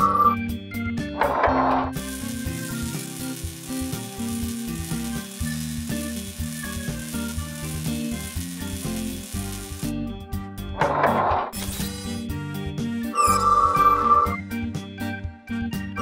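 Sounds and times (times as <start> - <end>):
background music: 0.0 - 16.0
crackling welding sizzle: 2.0 - 10.2, 11.6 - 12.3, 13.2 - 14.0.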